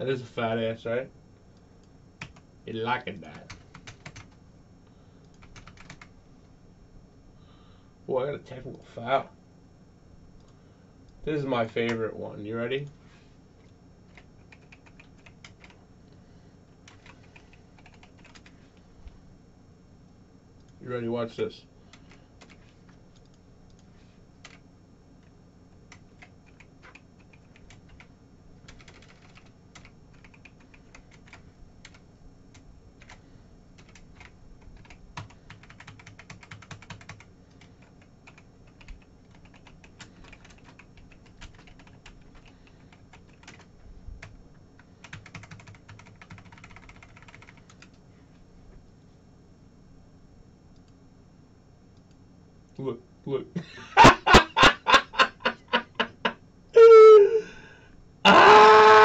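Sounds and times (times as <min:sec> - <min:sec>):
typing on computer keyboard: 0:02.2 - 0:02.4, 0:03.3 - 0:04.4, 0:05.4 - 0:06.1, 0:14.1 - 0:15.8, 0:16.9 - 0:18.5, 0:25.9 - 0:32.0, 0:33.8 - 0:44.4, 0:45.0 - 0:48.0.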